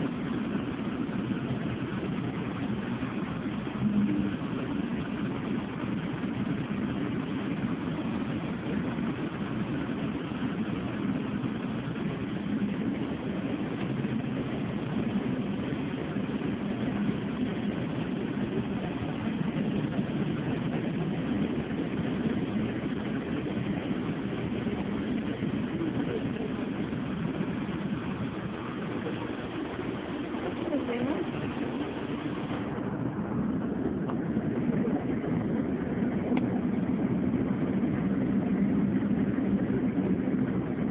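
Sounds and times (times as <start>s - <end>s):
bus engine and road rumble: 0.0s - 40.9s.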